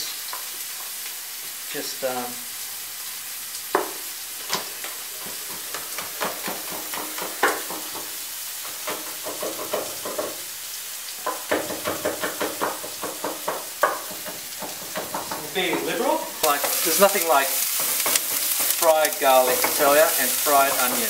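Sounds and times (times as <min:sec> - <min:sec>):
food sizzling in a frying pan: 0:00.0 - 0:21.0
knife chopping on wooden board: 0:11.3 - 0:15.5.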